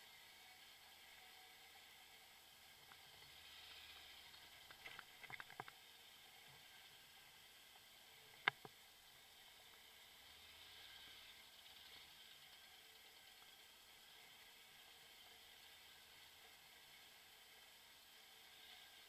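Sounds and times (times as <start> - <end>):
faint steady hiss: 0.0 - 19.0
small clicks: 4.6 - 5.8, 8.3 - 8.8.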